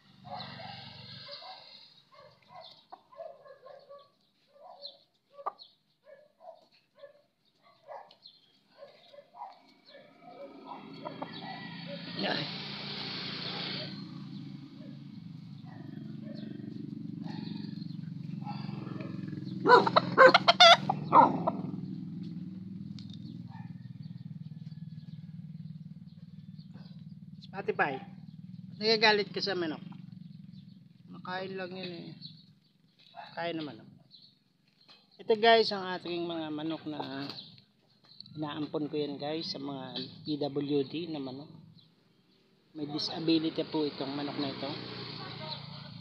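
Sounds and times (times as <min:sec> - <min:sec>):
dog barking: 0:00.1 - 0:12.2, 0:14.8 - 0:21.8, 0:23.4 - 0:23.9, 0:26.7 - 0:27.0, 0:33.1 - 0:33.4
chickens clucking: 0:05.3 - 0:05.8, 0:08.8 - 0:14.3, 0:14.9 - 0:21.8.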